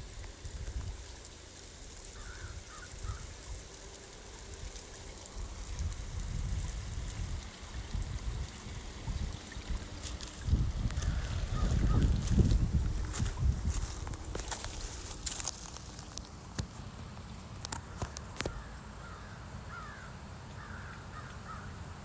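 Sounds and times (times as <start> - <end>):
stream water trickling: 0.0 - 22.0
distant bird calls: 2.2 - 3.3, 17.8 - 21.8.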